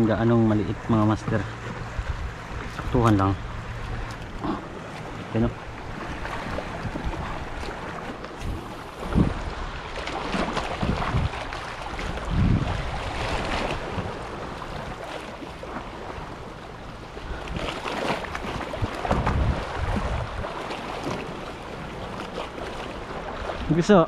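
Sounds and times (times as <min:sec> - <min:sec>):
wind gusting on microphone: 0:00.0 - 0:15.0, 0:17.3 - 0:21.2
sea waves washing: 0:00.0 - 0:24.0.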